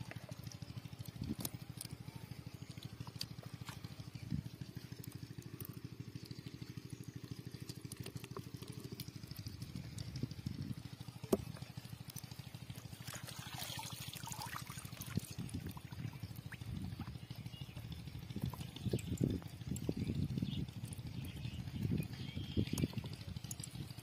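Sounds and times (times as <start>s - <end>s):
water trickling and splashing: 0.0s - 24.0s.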